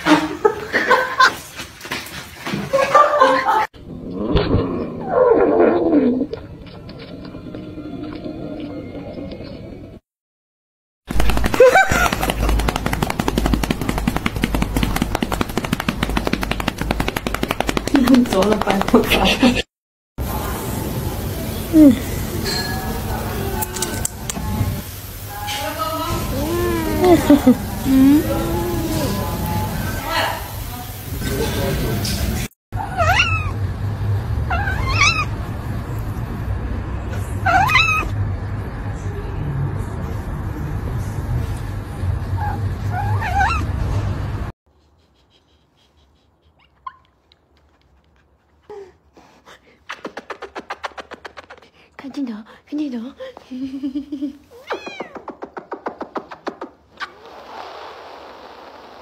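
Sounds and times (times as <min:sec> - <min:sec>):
cat meowing: 0:32.8 - 0:33.6, 0:34.5 - 0:35.3, 0:37.4 - 0:38.1, 0:42.4 - 0:43.7, 0:54.6 - 0:55.2
cat purring loudly: 0:57.1 - 0:59.0.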